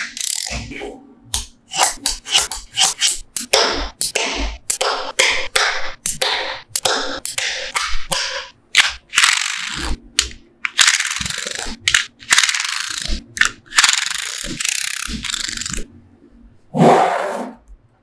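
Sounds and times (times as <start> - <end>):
magnetic balls clicking: 1.3 - 15.9
rapid rattling clicks of balls: 3.1 - 15.9.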